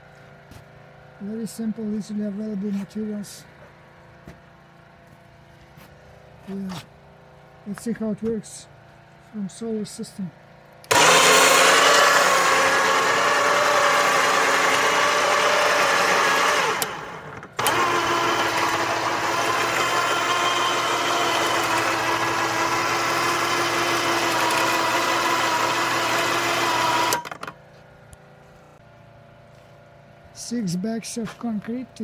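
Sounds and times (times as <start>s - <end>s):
winch motor whine with gear noise: 8.5s - 29.2s.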